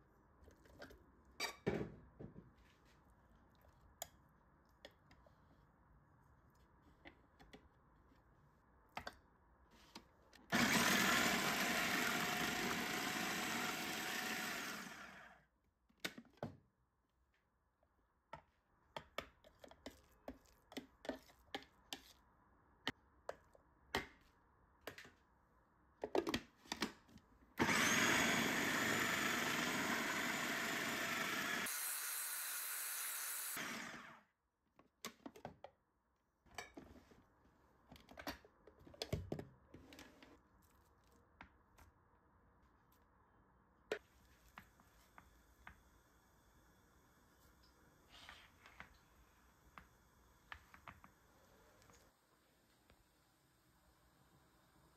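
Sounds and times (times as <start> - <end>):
food processor motor: 10.5 - 15.4, 27.6 - 34.2.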